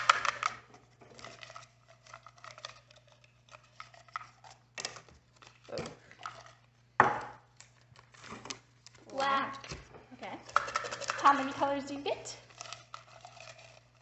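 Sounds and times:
paper rustling and crinkling: 0:07.5 - 0:09.9.

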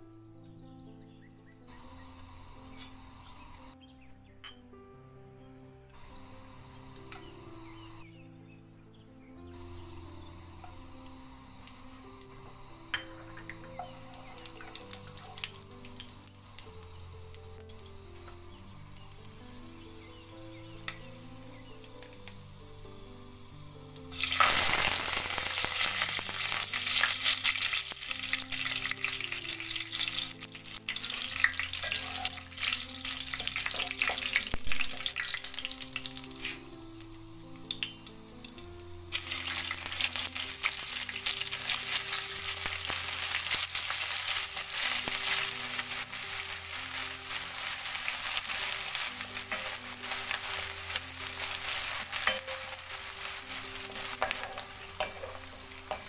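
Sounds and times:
soft background music: 0:00.0 - 0:56.0
oil sizzling in a pot: 0:01.7 - 0:03.8, 0:06.0 - 0:08.1, 0:09.4 - 0:56.0
wooden spatula stirring: 0:39.2 - 0:56.0.

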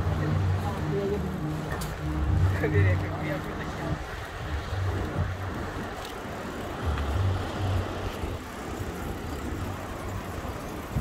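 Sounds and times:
low rumble: 0:00.0 - 0:06.0
bicycle tyres on pavement: 0:00.0 - 0:11.0
wind buffeting microphone: 0:00.0 - 0:11.0.

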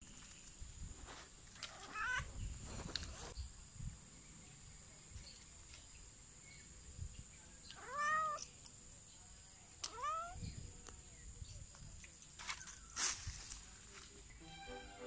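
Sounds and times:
kitten meowing: 0:07.8 - 0:08.4, 0:09.9 - 0:10.4.

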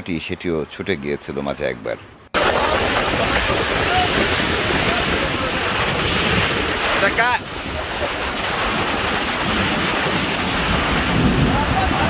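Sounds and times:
wind gusts buffeting microphone: 0:00.7 - 0:12.0
heavy rain: 0:02.4 - 0:12.0.

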